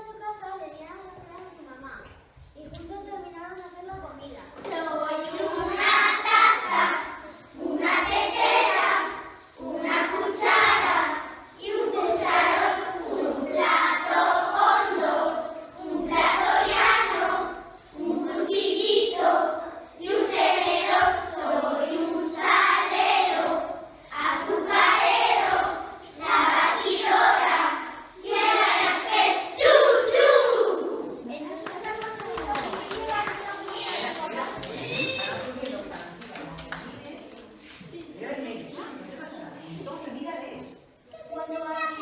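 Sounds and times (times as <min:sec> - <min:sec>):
children singing in unison: 0:05.2 - 0:31.2.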